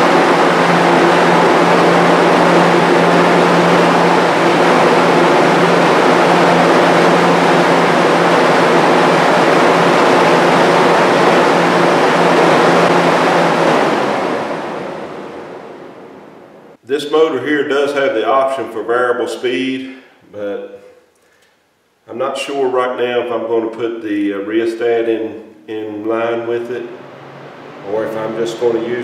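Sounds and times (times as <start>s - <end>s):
exhaust fan running: 0.0s - 29.0s.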